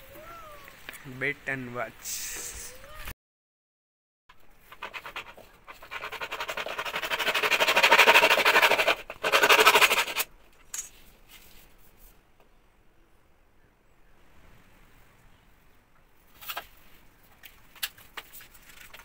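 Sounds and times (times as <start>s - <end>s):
hacksaw cutting plastic pipe: 4.7s - 10.3s.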